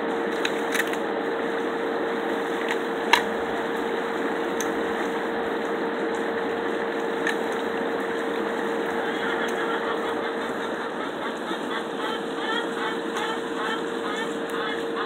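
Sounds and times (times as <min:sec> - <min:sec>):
steady hum: 0:00.0 - 0:15.0
crab shells cracking: 0:00.4 - 0:01.0, 0:07.0 - 0:07.8.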